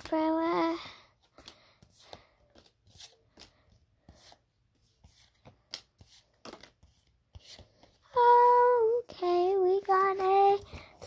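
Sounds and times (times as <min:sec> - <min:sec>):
cards sliding and flipping: 0:01.2 - 0:08.0.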